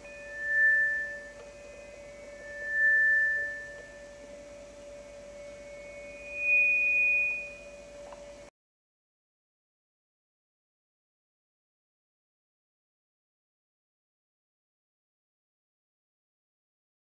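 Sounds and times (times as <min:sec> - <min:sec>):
pure high tones: 0:00.0 - 0:08.5
steady lower hum: 0:00.0 - 0:08.5.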